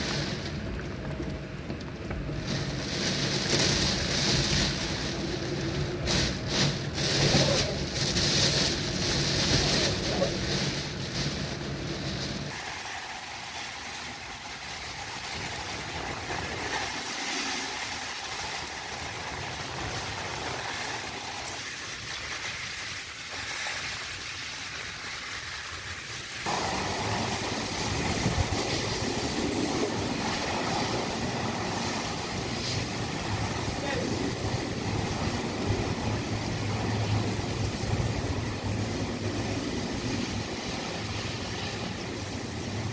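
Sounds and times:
wind and heavy rain: 0:00.0 - 0:42.9
deep rumble of wind gusts: 0:26.6 - 0:42.9.

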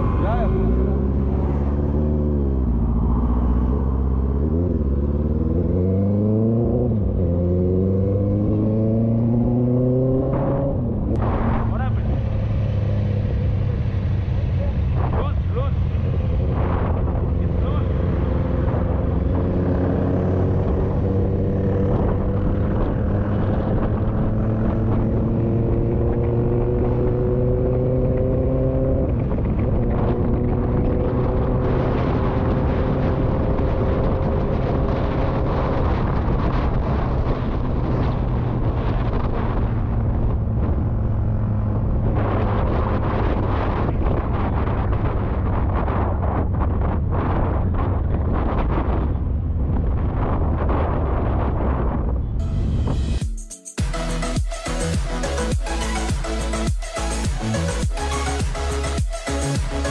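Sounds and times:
motorcycle engine revving: 0:00.0 - 0:45.0
wind on microphone: 0:00.0 - 0:53.2.

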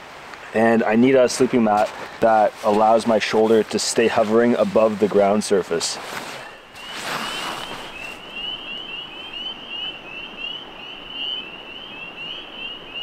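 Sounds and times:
brief rustle: 0:06.0 - 0:08.2
frogs peeping: 0:06.5 - 0:13.0.

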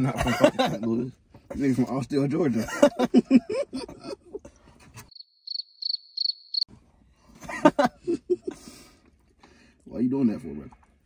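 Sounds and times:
men laughing: 0:00.0 - 0:01.0, 0:02.5 - 0:04.7, 0:07.4 - 0:08.9
cricket chirp sound effect: 0:05.1 - 0:06.7.

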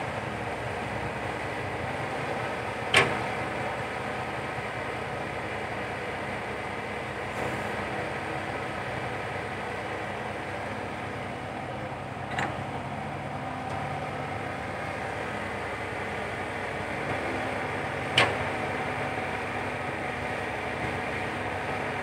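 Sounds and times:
excavator diesel engine running: 0:00.0 - 0:22.0.

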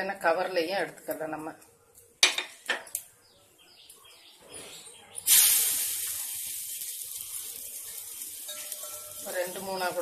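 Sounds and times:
dough sizzling on hot griddle: 0:05.2 - 0:10.0.

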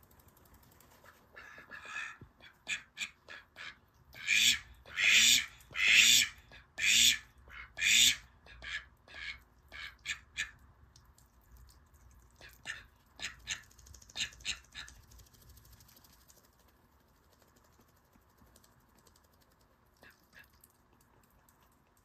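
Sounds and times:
ducks making short sharp calls: 0:01.0 - 0:10.6.

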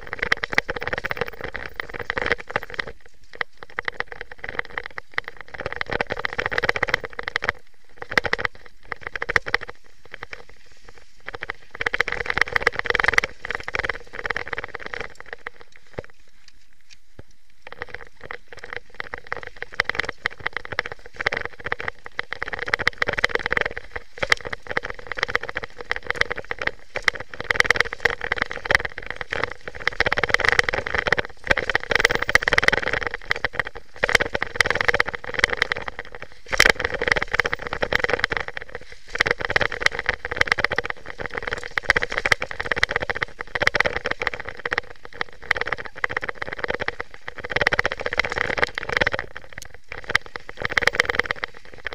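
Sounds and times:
mountain bike rattling on bumps: 0:00.0 - 0:16.4, 0:17.2 - 0:51.9
steady rushing noise: 0:00.0 - 0:51.9.

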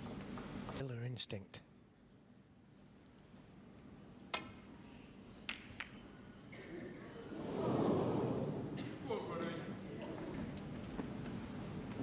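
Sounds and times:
snooker balls clicking: 0:05.4 - 0:06.1
audience noise: 0:07.1 - 0:10.4.

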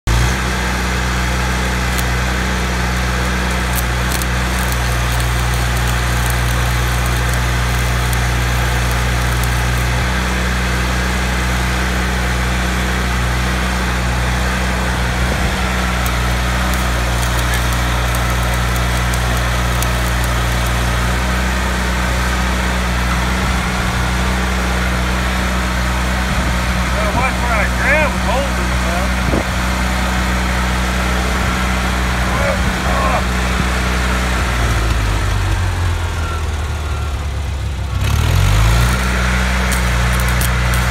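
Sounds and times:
welding machine engine running: 0:00.2 - 0:23.3, 0:37.5 - 0:40.9
welding arc crackling: 0:01.0 - 0:10.1, 0:14.6 - 0:21.5, 0:38.2 - 0:40.9.

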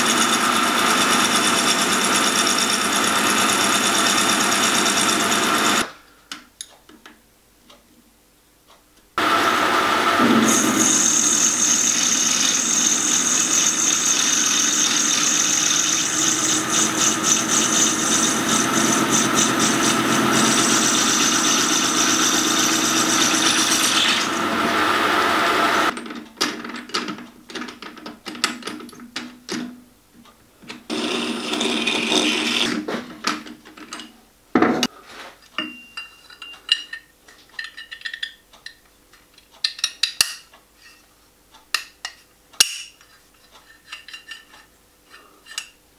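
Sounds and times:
metal lathe cutting: 0:00.0 - 0:05.9, 0:09.2 - 0:25.9, 0:30.9 - 0:32.7.

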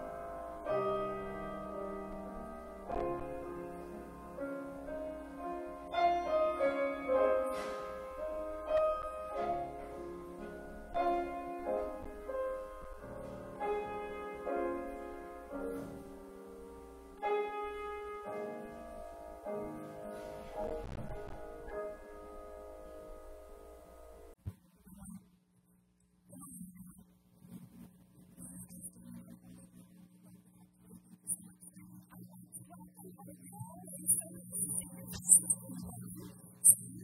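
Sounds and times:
grand piano slow piece: 0:00.0 - 0:24.4.

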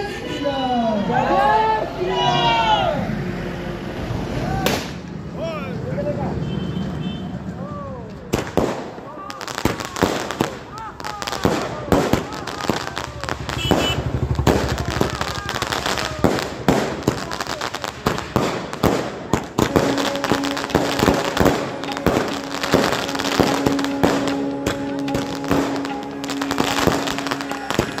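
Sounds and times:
fireworks bangs and crackling: 0:04.6 - 0:05.1, 0:08.2 - 0:28.0.

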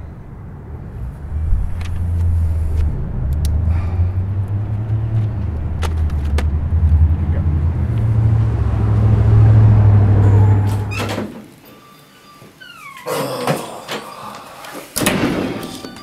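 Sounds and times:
low mechanical rumble: 0:00.0 - 0:11.3.

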